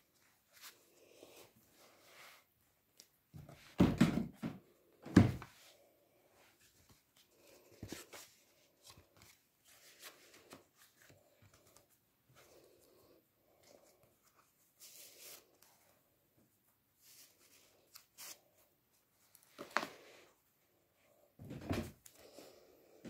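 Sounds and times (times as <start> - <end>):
paper rustling: 6.6 - 12.6.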